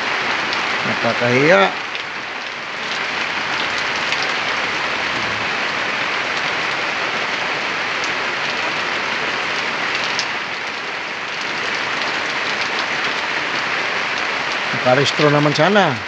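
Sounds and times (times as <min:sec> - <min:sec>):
steady rain hiss: 0:00.0 - 0:16.0
faint raindrop ticks: 0:09.9 - 0:13.2, 0:14.2 - 0:16.0.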